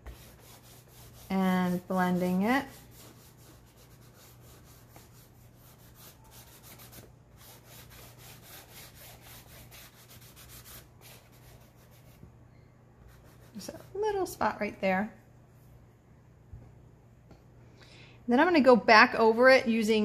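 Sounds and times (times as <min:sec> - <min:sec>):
fingers rubbing chalk on board: 0:00.0 - 0:12.1.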